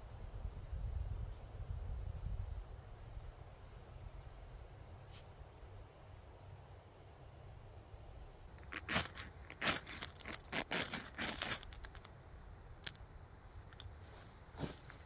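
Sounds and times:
ferro rod rasping strokes: 8.6s - 12.0s.

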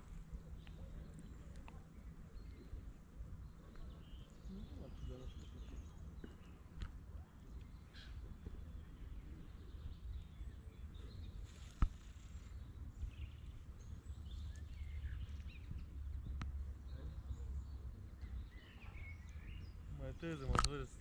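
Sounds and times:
small birds chirping: 0.0s - 21.0s
wind rumble on microphone: 0.0s - 21.0s
sharp click: 20.4s - 20.9s.

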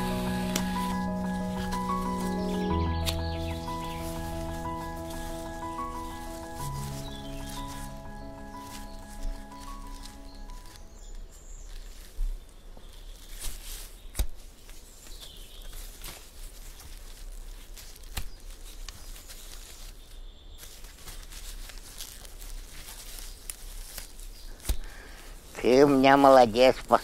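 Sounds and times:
short music: 0.0s - 11.0s
footsteps through undergrowth: 0.0s - 27.0s.

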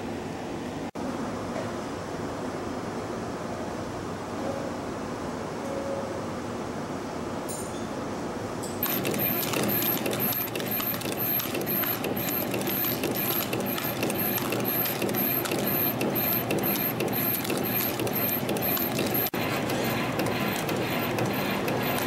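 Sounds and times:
spring coiling machine clicking: 8.8s - 22.0s.

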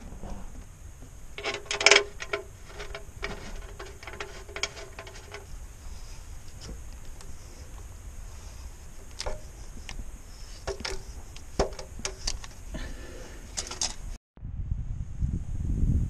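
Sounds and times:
metal wrench clattering: 1.4s - 5.5s, 10.4s - 12.6s, 13.5s - 14.1s.

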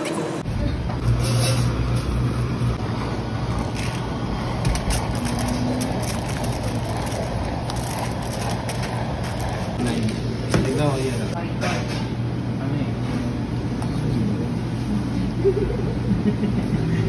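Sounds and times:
blowtorch flame hissing: 1.6s - 11.4s.

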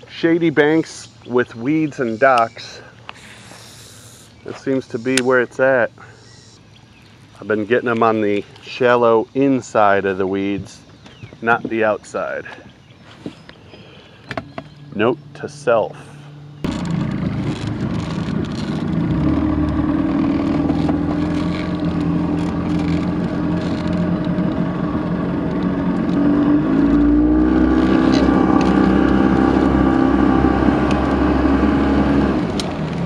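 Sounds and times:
outboard motor running: 13.7s - 33.0s.

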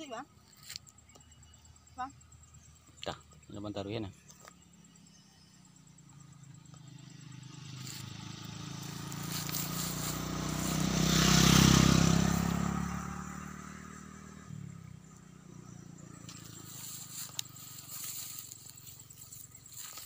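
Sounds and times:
motorcycle passing: 4.2s - 20.0s.

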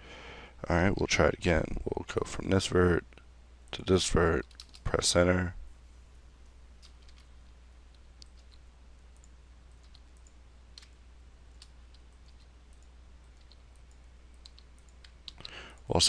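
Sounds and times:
steady low hum: 0.0s - 16.0s
mouse and keyboard clicks: 4.4s - 4.8s, 6.8s - 7.3s, 7.9s - 8.6s, 9.2s - 15.6s.

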